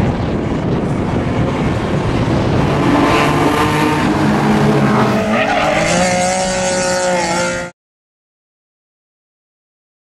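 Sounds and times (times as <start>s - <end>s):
race car engines revving: 0.0s - 7.7s.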